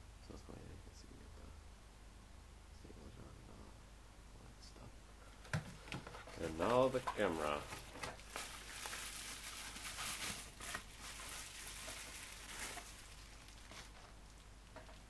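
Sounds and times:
bubble wrap crinkling: 0:06.0 - 0:15.0.

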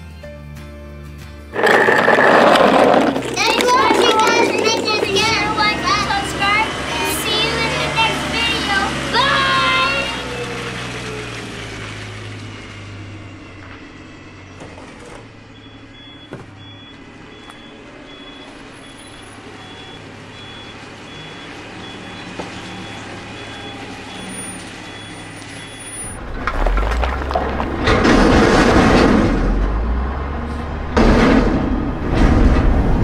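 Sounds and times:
truck engine running: 0:01.5 - 0:33.0
trash sliding and tumbling: 0:01.6 - 0:06.5, 0:26.1 - 0:29.8
backup alarm beeping: 0:15.5 - 0:26.1.

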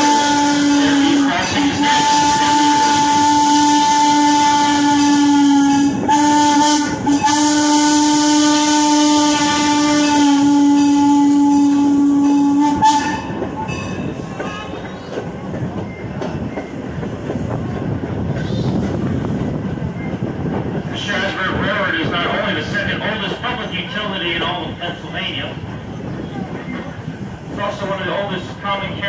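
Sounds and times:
steam locomotive whistle blowing: 0:00.0 - 0:14.8
train rolling along rails: 0:00.0 - 0:29.0.

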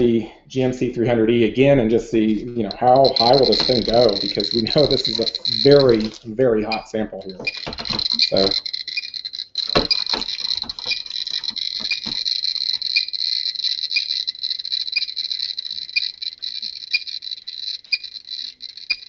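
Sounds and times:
geiger counter clicking rapidly: 0:02.7 - 0:19.0
bright tick: 0:03.0 - 0:06.2
handling knocks: 0:07.2 - 0:08.5, 0:09.7 - 0:11.0.

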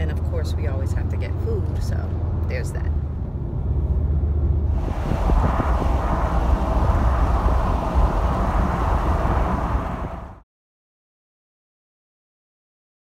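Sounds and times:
car road noise rumble: 0:00.0 - 0:10.4.

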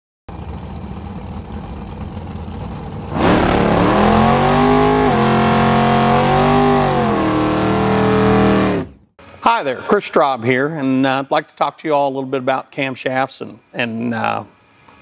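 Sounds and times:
car engine idling and revving: 0:00.3 - 0:09.0.

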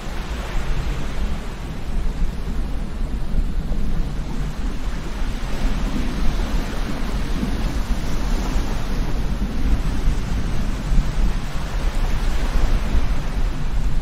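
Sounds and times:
breaking surf: 0:00.0 - 0:14.0
wind buffeting microphone: 0:00.0 - 0:14.0.

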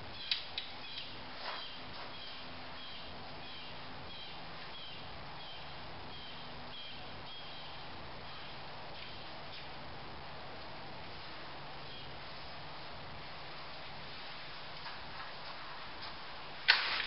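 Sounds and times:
steady outdoor hiss: 0:00.0 - 0:17.0
bird chirping: 0:00.1 - 0:09.6.

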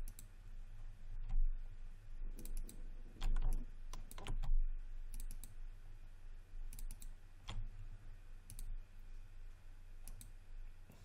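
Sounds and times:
low steady hum: 0:00.0 - 0:11.0
mouse and keyboard clicks: 0:02.4 - 0:04.5.

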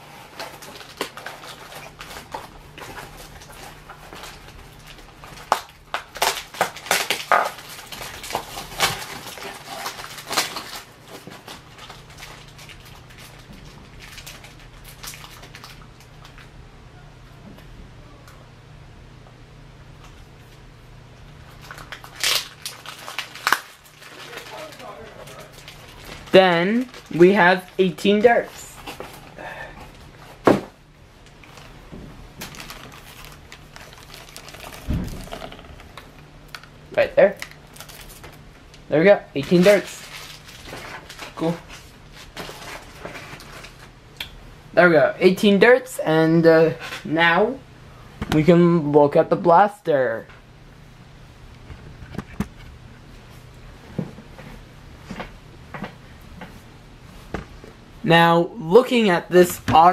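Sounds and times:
packaging crinkling: 0:00.2 - 0:16.5, 0:21.4 - 0:30.4, 0:32.4 - 0:38.4, 0:39.4 - 0:44.0.

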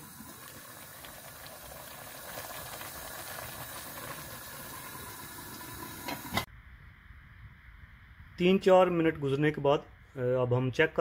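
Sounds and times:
steam hissing: 0:00.0 - 0:06.5.

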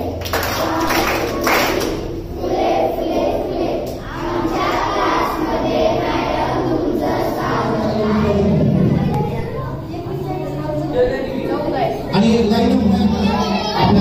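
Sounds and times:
children singing in unison: 0:00.0 - 0:09.5.

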